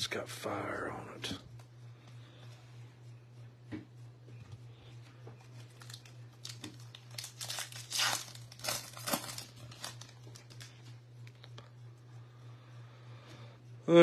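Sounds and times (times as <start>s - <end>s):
foil wrapper crinkling and tearing: 5.4s - 10.8s.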